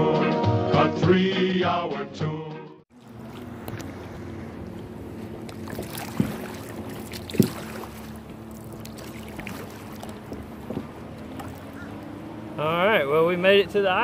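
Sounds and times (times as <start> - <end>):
water washing against kayak hull: 2.9 - 12.3
motorboat engine drone: 2.9 - 14.0
paddle knocking on kayak: 4.7 - 12.0.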